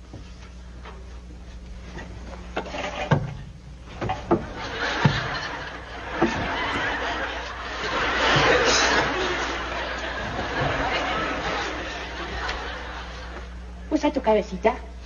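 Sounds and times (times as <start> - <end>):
knocks and thumps on ladder: 2.6 - 7.0
audience laughter: 4.1 - 13.9.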